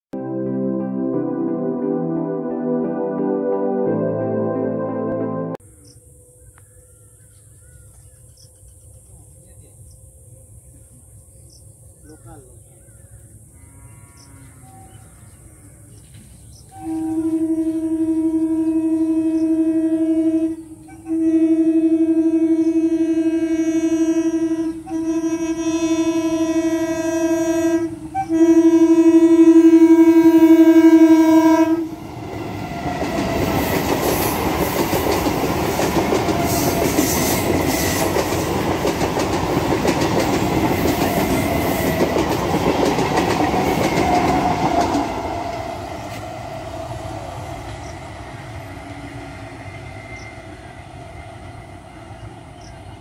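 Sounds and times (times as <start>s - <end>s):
train passing with loud rush: 15.5s - 53.0s
train horn blast: 16.7s - 34.7s, 36.0s - 38.4s
wheels clacking over rail joints: 32.3s - 46.4s.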